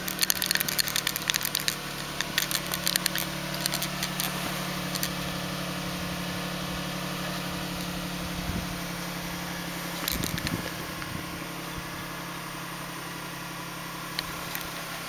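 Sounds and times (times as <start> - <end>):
car engine idling: 0.0 - 15.0.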